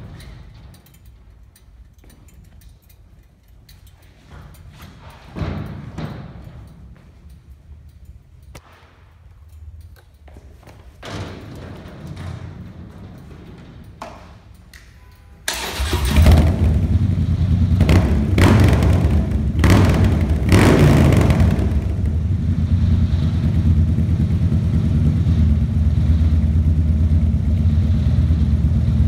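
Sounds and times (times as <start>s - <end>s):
motorcycle engine revving: 15.5s - 29.0s
motorcycle engine starting and idling: 15.5s - 29.0s.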